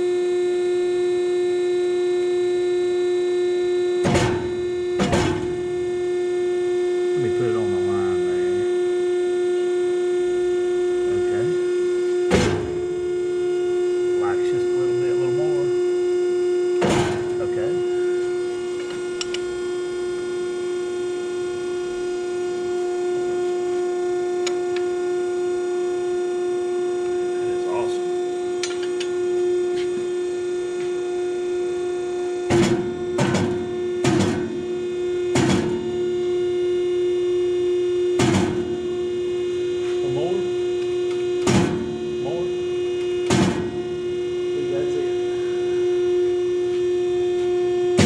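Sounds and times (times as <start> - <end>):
hydraulic motor and pump hum: 0.0 - 48.0
heavy thunks on steel: 4.0 - 5.7, 12.3 - 12.9, 16.8 - 17.4, 32.5 - 34.7, 35.3 - 36.0, 38.2 - 38.8, 41.4 - 42.1, 43.3 - 43.9.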